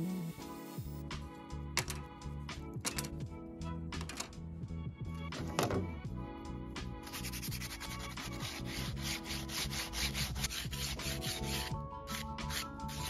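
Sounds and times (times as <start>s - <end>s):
hand sanding wood: 7.1s - 13.0s.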